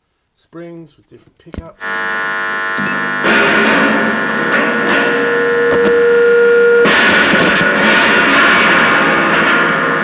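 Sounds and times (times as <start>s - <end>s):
gritty noise with held tone: 0.3s - 10.0s
distorted amplified spring drone: 1.8s - 10.0s.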